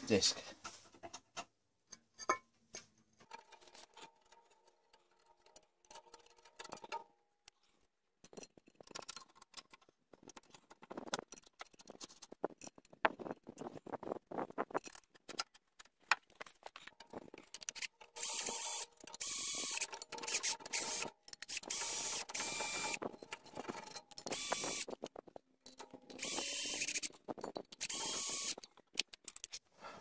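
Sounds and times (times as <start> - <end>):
ratchet wrench clicking: 17.5 - 23.0, 23.8 - 25.1, 26.1 - 29.5.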